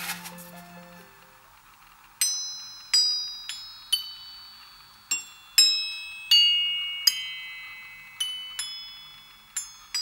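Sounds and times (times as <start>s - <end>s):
metal glockenspiel plates ringing: 2.2s - 10.0s.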